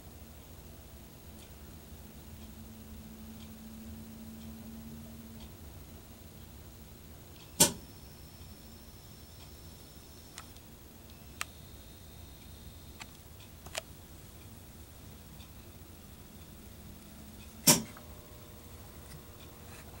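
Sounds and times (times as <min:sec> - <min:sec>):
camera zoom motor whine: 0:07.5 - 0:13.8, 0:16.8 - 0:20.0
camera clicks: 0:13.0 - 0:13.9.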